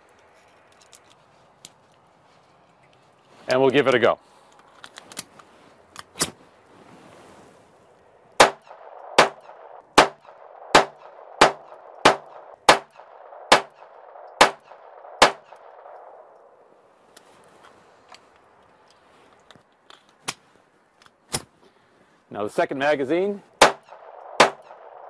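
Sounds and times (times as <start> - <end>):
pistol gunshots: 8.4 - 16.1, 23.6 - 25.0.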